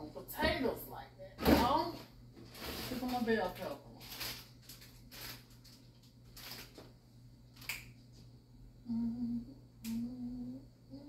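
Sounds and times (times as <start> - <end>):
plastic bags crinkling: 2.4 - 7.7
woman humming: 8.8 - 11.0.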